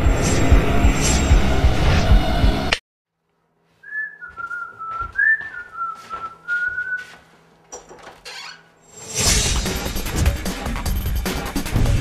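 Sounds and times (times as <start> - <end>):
person whistling: 3.8 - 7.2.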